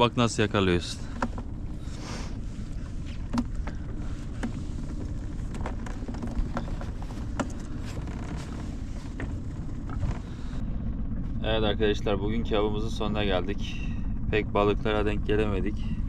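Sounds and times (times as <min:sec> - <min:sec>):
boat engine low rumble: 0:00.0 - 0:16.0
light clicks and knocks: 0:03.1 - 0:10.3.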